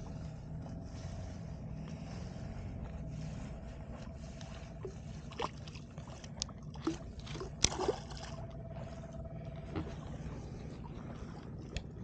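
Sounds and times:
water lapping against boat hull: 0.0s - 12.0s
fish thrashing splashes: 5.2s - 8.9s.

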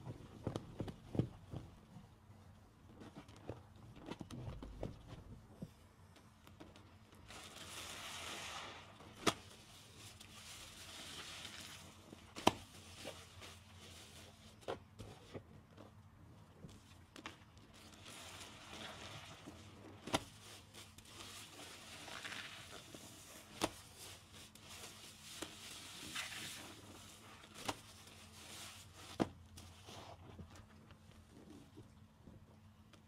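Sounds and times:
wet sponges squishing: 7.3s - 13.8s, 17.8s - 29.2s.

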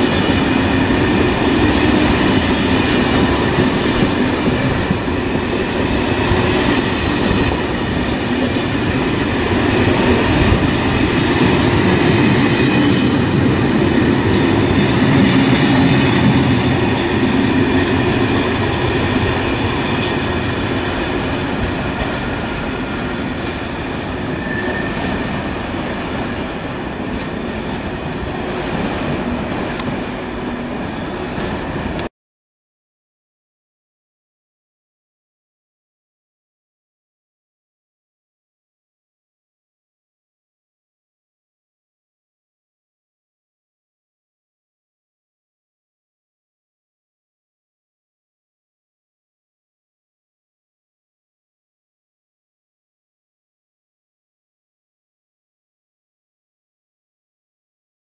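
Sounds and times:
train wheels clattering over rail joints: 0.0s - 30.1s
train rumble: 0.0s - 32.1s.

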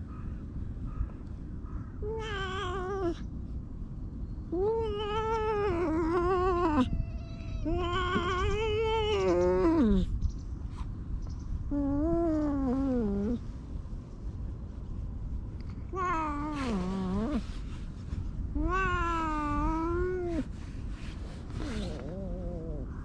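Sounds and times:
cat meowing: 2.0s - 3.2s, 4.5s - 10.1s, 15.9s - 17.4s, 18.6s - 20.5s.

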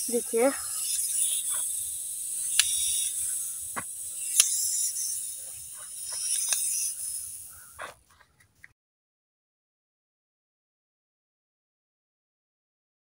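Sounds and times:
insect chirring: 0.0s - 8.2s
plastic toys clicking on dirt: 0.0s - 8.7s.

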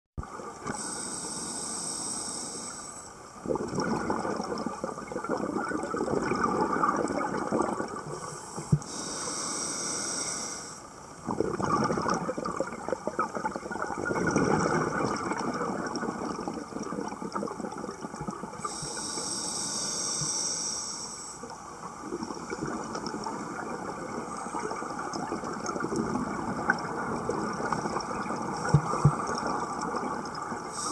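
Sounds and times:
hissing regulator inhalations: 0.7s - 3.2s, 8.1s - 10.9s, 18.6s - 21.6s, 30.6s - 30.9s
bubbling exhalations underwater: 3.4s - 8.2s, 11.2s - 18.8s, 22.0s - 30.8s.

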